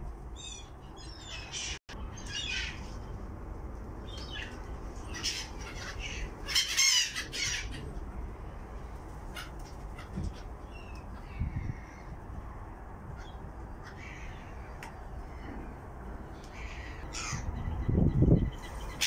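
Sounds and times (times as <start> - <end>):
gulls squawking: 4.3 - 7.9, 16.5 - 17.6.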